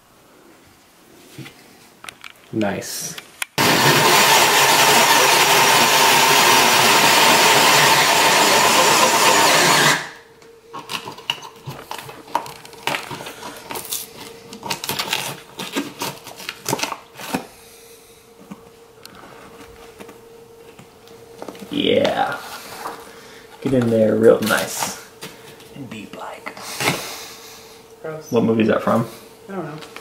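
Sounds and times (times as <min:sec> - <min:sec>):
drill grinding through drywall: 0:03.6 - 0:10.2.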